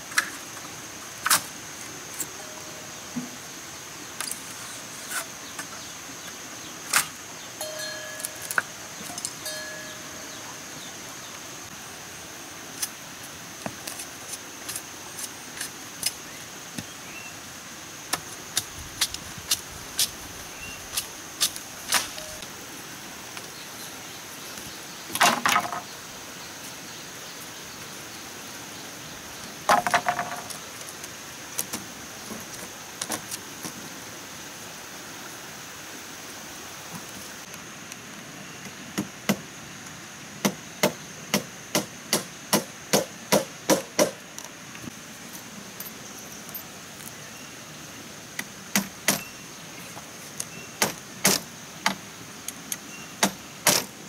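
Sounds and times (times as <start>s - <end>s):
high insect drone: 0.0s - 54.0s
hammer striking bamboo: 40.4s - 44.2s, 48.7s - 49.3s, 50.8s - 52.0s, 53.2s - 53.9s.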